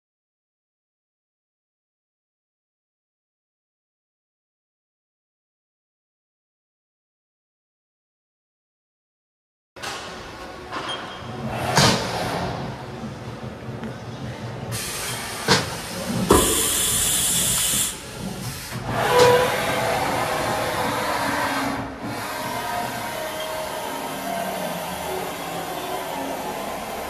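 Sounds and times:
steady hiss: 14.8 - 18.2
burst of hiss: 14.8 - 18.8.

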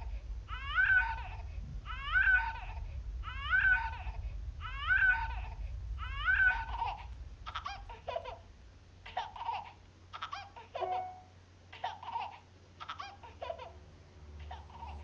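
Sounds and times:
baby giggling and babbling: 9.1 - 11.2, 14.5 - 15.0.

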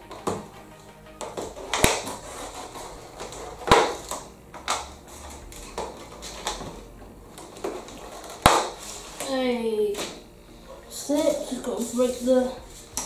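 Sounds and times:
sharp snaps and knocks: 1.2 - 2.2, 7.4 - 8.8.

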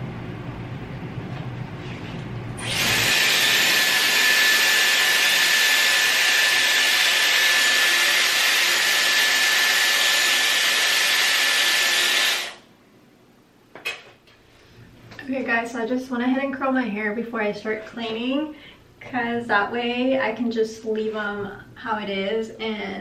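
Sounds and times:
hot-air wand blowing: 2.6 - 12.6.

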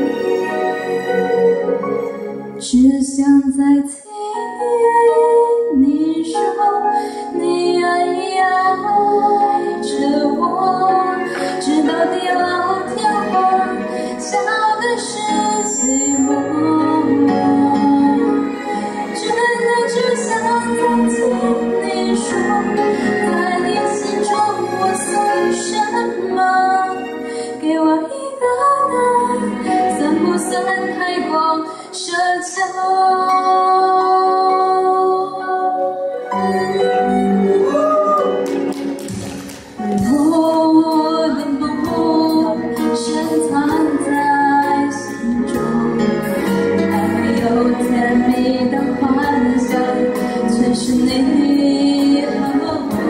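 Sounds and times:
instrumental accompaniment: 0.0 - 3.5, 4.4 - 31.8, 32.8 - 53.0
woman singing pop ballad: 2.6 - 18.6, 27.6 - 35.6, 39.9 - 53.0.

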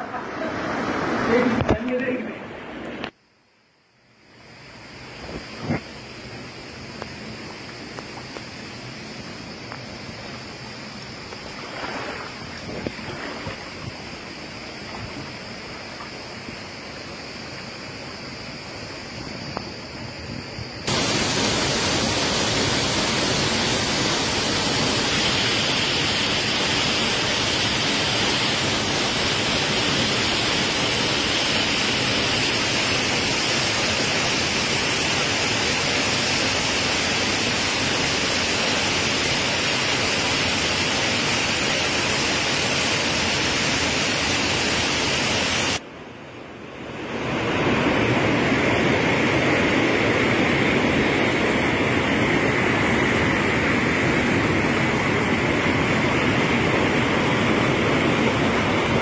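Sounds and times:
stream rushing over rocks: 0.0 - 3.1, 6.8 - 17.0, 20.9 - 45.8, 47.0 - 59.0
waterfall pouring into pool: 20.9 - 45.8.

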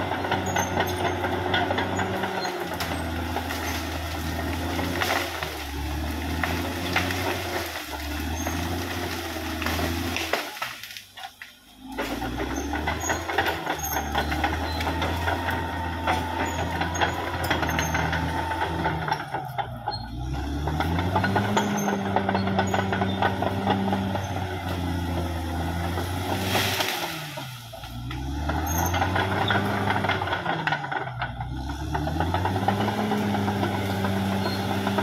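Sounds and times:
bulldozer diesel engine: 0.0 - 35.0
metallic clatter: 12.0 - 24.9.

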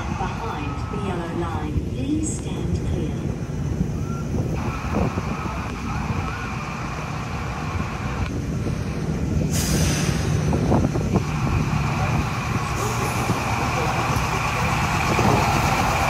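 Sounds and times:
high whine: 0.0 - 16.0
train running hum: 0.0 - 16.0
air hissing: 9.4 - 12.0.

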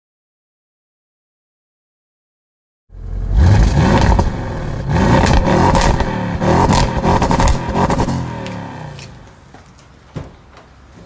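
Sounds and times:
car engine revving: 2.9 - 9.2
exhaust cracks and pops: 5.1 - 9.9.

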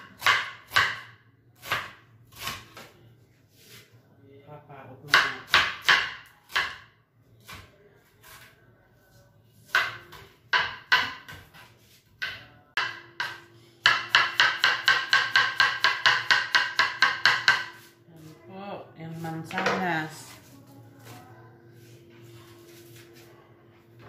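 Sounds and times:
knife chopping on plastic board: 0.0 - 2.9, 5.0 - 8.4, 9.6 - 17.9.

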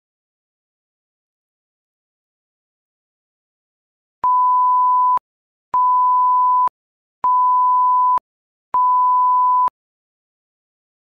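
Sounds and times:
electronic beep: 8.8 - 9.8.

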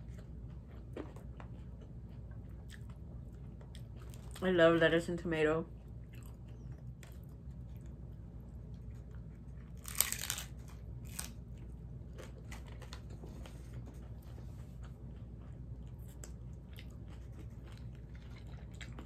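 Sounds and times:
chewing with small crunches: 0.0 - 4.8, 5.6 - 19.0
crunchy taco shell bite: 9.6 - 13.2.

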